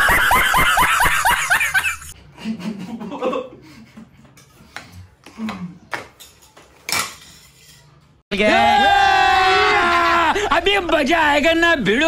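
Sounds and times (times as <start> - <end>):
people laughing: 0.0 - 4.4.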